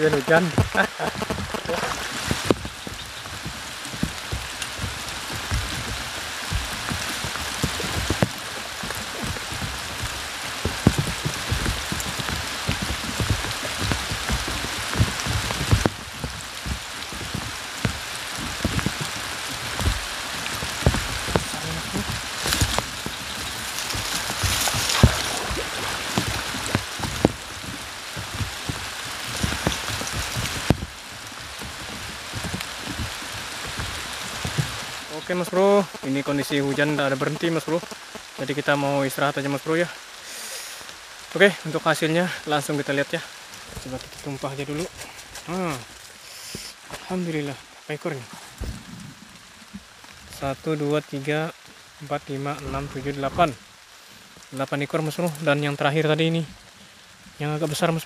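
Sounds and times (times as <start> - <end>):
raindrop taps: 0.0 - 58.0
steady rain hiss: 0.0 - 58.0.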